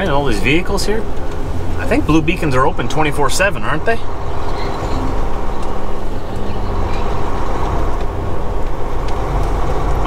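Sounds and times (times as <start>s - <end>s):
truck diesel engine running: 0.0s - 10.0s.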